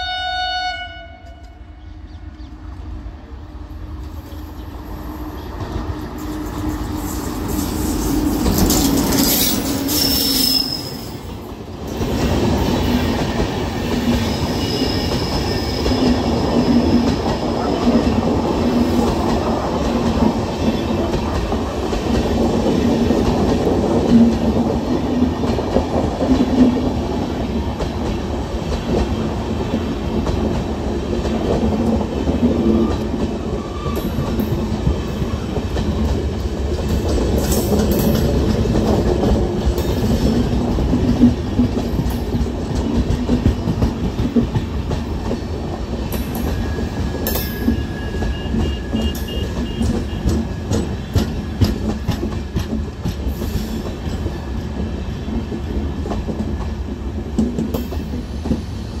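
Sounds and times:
train wheels rumbling: 1.2s - 59.0s
high wheel squeal: 4.9s - 11.4s, 14.2s - 17.8s, 46.5s - 51.0s
wheels clickety-clack: 5.4s - 10.1s, 11.4s - 58.8s.

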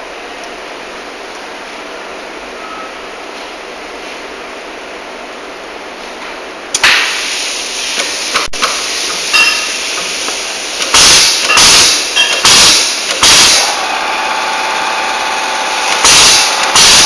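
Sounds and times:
short beeps: 2.6s - 3.0s
crimping machine running: 10.7s - 17.0s
loud bursts: 10.9s - 17.0s.

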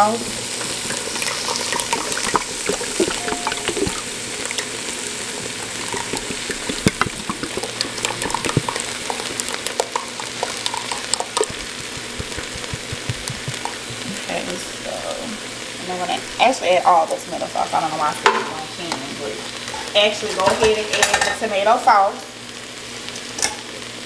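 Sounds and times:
vegetables sizzling in hot oil: 0.0s - 24.0s
sauce pouring from a can: 0.9s - 14.3s.

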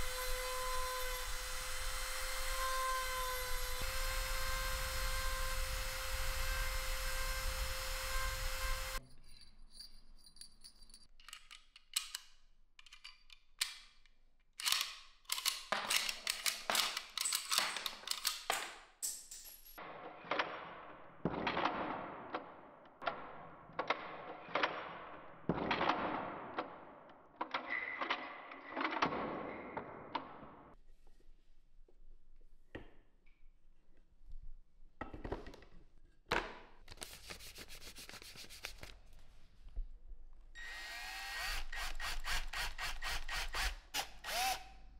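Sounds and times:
tool clicks and knocks: 14.6s - 18.8s.

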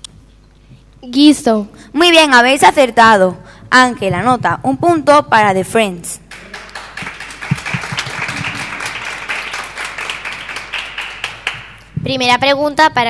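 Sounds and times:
children applauding: 6.3s - 11.9s.

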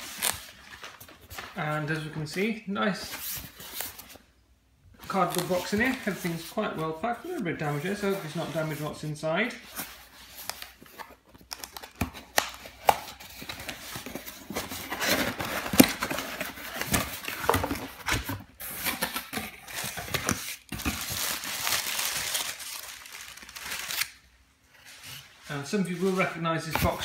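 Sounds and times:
packing paper crinkling: 0.0s - 2.1s, 9.8s - 24.3s.

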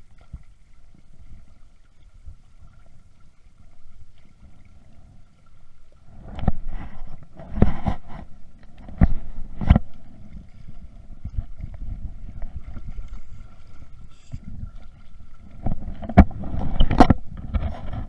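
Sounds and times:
choppy river water: 0.0s - 18.0s
wind rumbling on microphone: 5.9s - 18.0s.

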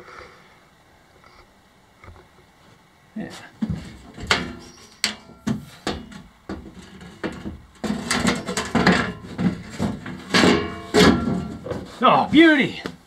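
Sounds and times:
sheet metal scraping and rattling: 3.8s - 12.0s
sharp knocks on metal sheet: 4.2s - 11.6s.

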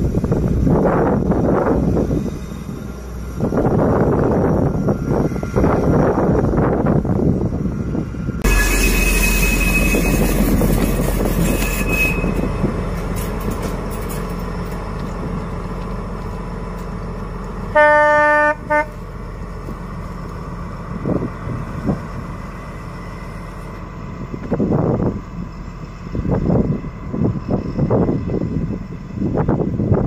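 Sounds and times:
diesel locomotive running past: 0.0s - 30.0s
locomotive horn blast: 8.4s - 12.8s, 17.7s - 19.0s.

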